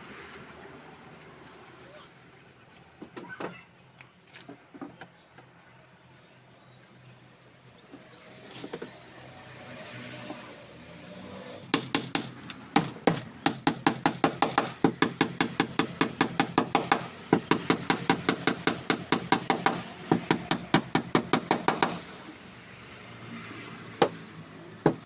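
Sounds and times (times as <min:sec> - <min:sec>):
hammer driving nails into wood: 0:11.7 - 0:22.0.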